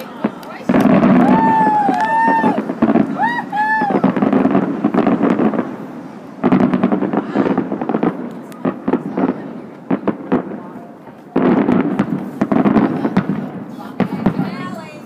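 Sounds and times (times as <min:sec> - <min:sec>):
crowd chatter: 0:00.0 - 0:15.0
fireworks popping and crackling: 0:00.0 - 0:15.0
firework whistles: 0:00.1 - 0:08.0.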